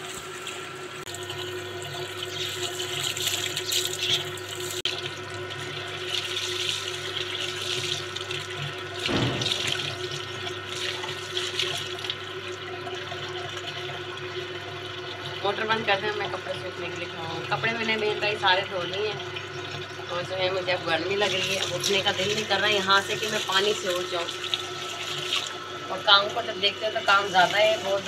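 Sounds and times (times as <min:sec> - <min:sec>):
water pump motor hum: 0:00.0 - 0:28.0
water splashing on concrete: 0:09.0 - 0:11.9.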